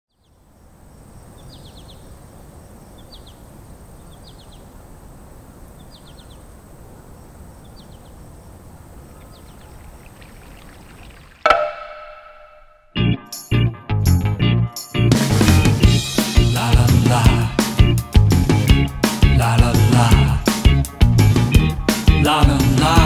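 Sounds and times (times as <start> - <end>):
outdoor background noise: 0.1 - 13.0
bird call high notes: 11.4 - 12.9.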